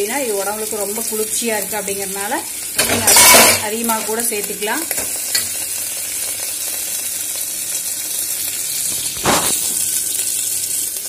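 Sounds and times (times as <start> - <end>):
food sizzling in oil: 0.0 - 11.0.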